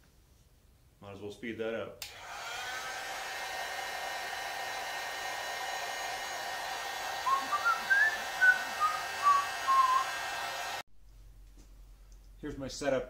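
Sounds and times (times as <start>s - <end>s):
heat gun blowing: 2.0s - 10.8s
man whistling a tune: 7.2s - 10.1s.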